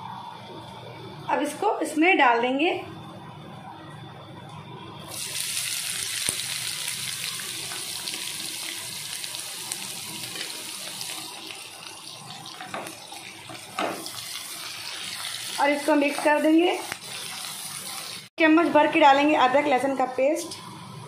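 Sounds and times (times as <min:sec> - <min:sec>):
onions sizzling in hot oil: 0:05.1 - 0:18.3
wooden spatula turning onions: 0:12.6 - 0:18.2.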